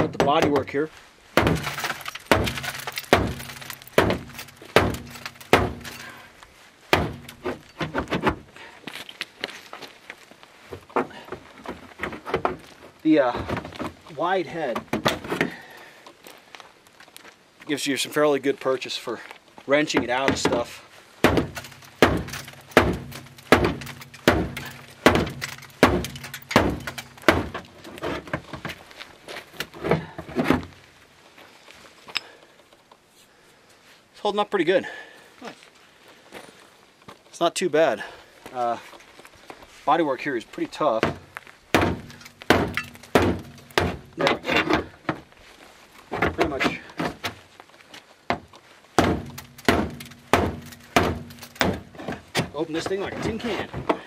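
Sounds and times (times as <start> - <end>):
axe striking sheet metal: 1.4 - 6.0, 7.0 - 7.6, 21.2 - 27.6, 41.8 - 44.1, 49.0 - 51.9.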